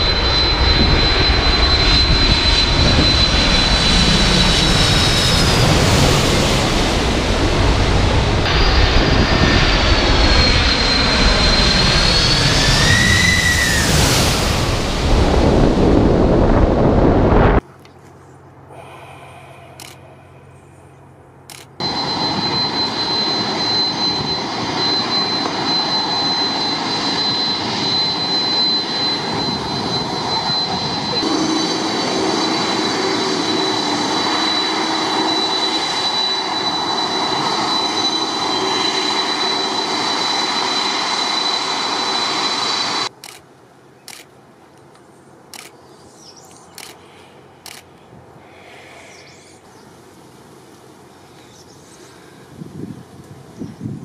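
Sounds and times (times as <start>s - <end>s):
jet engine blast with high whine: 0.0s - 17.6s, 18.7s - 43.4s
faint wind noise: 0.0s - 39.0s, 46.8s - 54.0s.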